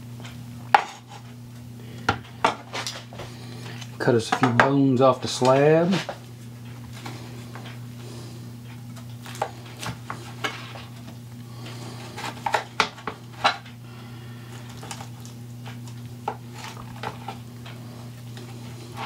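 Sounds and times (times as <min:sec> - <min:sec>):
knife scraping: 0:00.8 - 0:01.4.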